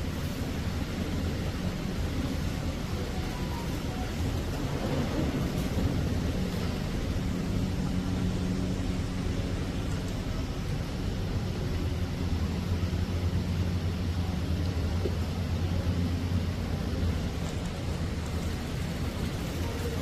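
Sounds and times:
low rumble and hiss: 0.0s - 20.0s.

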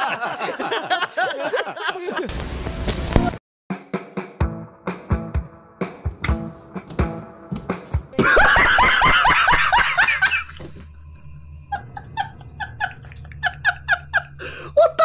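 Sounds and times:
man laughing hard: 0.0s - 2.3s, 8.2s - 10.8s, 11.7s - 15.0s.

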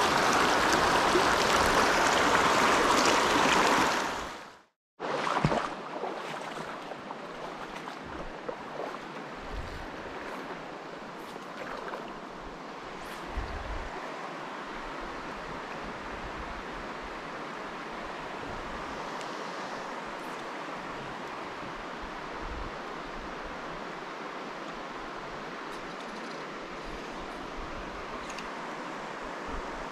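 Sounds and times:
river rushing over rocks: 0.0s - 9.4s.

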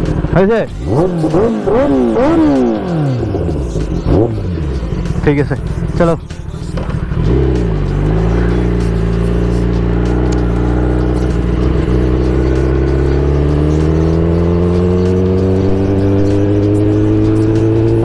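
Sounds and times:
motorcycle engine pulling away: 6.6s - 18.0s.

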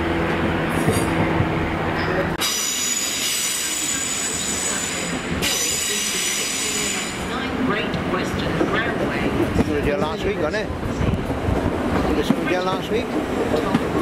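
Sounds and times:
train diesel engine droning: 0.0s - 9.6s
train wheel squeal: 2.4s - 7.4s.

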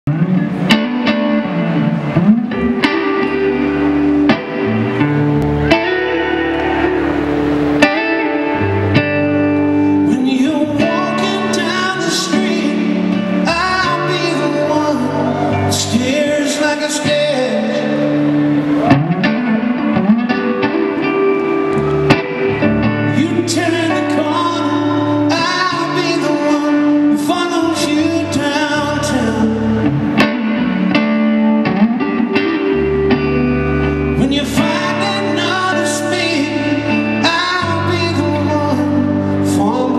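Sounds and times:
electric guitar: 0.0s - 39.9s
live rock band: 0.1s - 39.9s
man singing: 10.0s - 18.4s, 23.0s - 30.4s, 34.1s - 39.9s.

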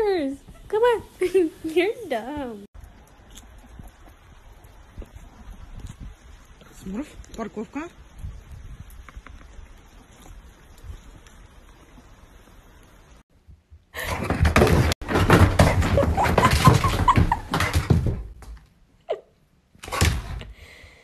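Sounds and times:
thumps and knocks on wooden floor: 14.2s - 18.6s.

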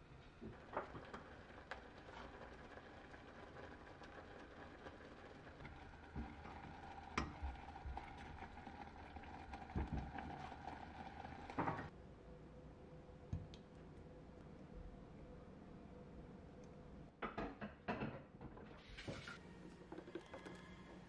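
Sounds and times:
compote bubbling: 0.5s - 11.9s.

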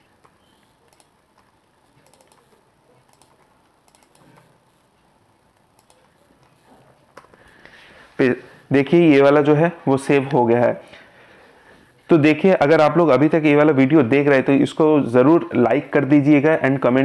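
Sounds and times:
keyboard and mouse clicks: 0.2s - 4.6s, 5.5s - 7.4s.

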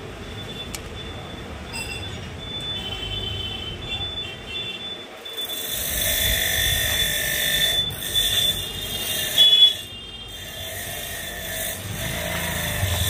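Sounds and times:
brief squeal: 0.5s - 3.0s.

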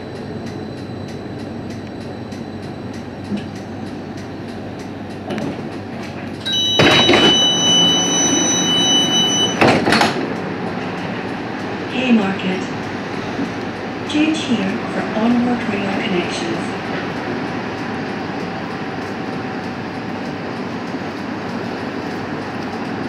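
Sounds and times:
tram low rumble: 0.0s - 23.0s
loud high-pitched tone: 6.4s - 9.6s.

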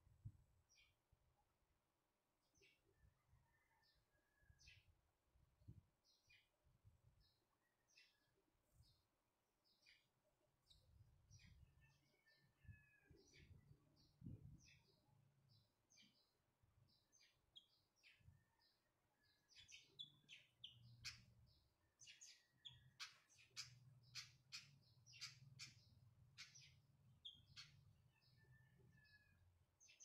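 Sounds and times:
bird chirping: 9.7s - 30.0s.

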